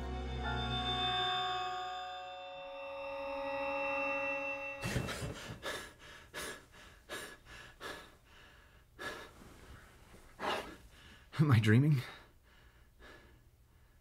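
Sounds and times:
man breathing hard: 0:04.8 - 0:11.3, 0:12.0 - 0:14.0.

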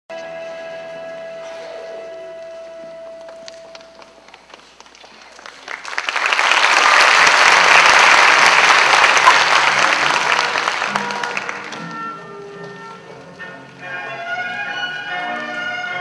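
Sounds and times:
audience applauding: 0:03.2 - 0:11.9.

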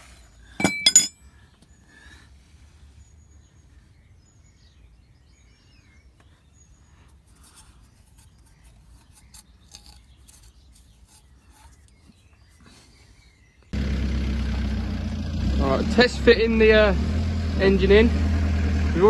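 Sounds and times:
faint scratching: 0:06.9 - 0:13.0.

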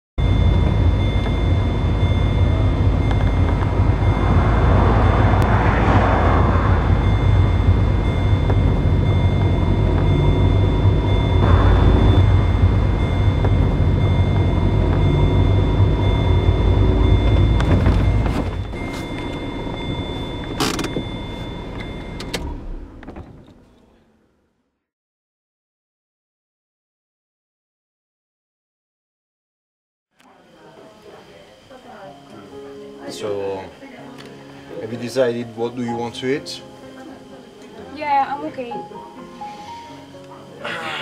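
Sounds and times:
rushing noise: 0:00.2 - 0:22.2
car cabin rumble: 0:00.2 - 0:24.0.

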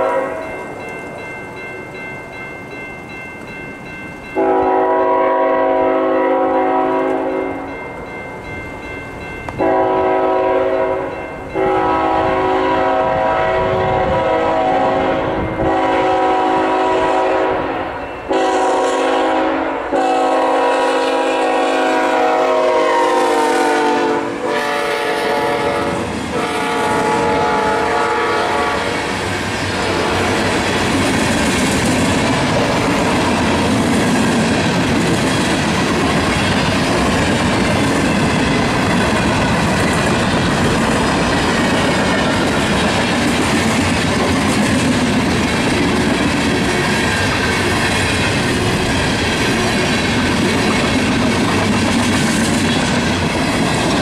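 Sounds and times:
locomotive air horn blasts: 0:00.0 - 0:00.4, 0:04.4 - 0:07.6, 0:09.6 - 0:29.2
crossing bell ringing: 0:00.0 - 0:20.6
train wheels clacking: 0:22.2 - 0:54.0.

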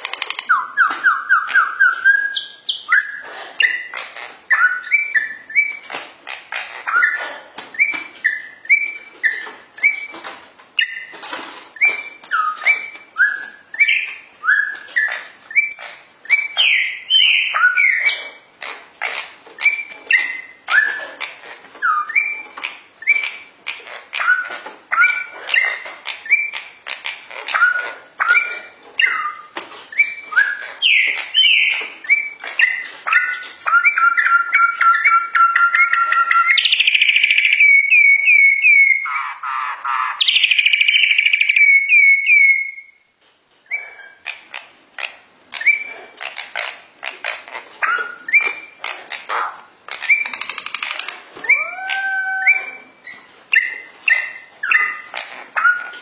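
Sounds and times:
songbird whistling: 0:00.5 - 0:03.9, 0:04.5 - 0:05.8, 0:07.8 - 0:10.1, 0:51.4 - 0:52.9.

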